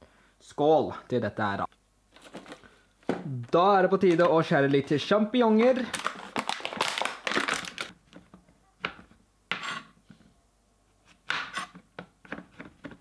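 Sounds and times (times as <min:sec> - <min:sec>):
plastic film crinkling and tearing: 0:03.9 - 0:08.0.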